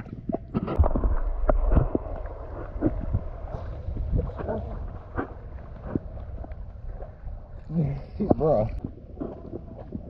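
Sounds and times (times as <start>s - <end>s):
water rushing against microphone: 0.0s - 10.0s
water splashing and sloshing: 0.0s - 10.0s.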